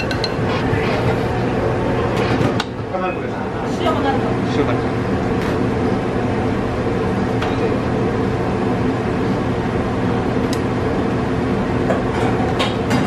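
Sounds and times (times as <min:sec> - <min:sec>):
kitchen equipment hum: 0:00.0 - 0:13.0.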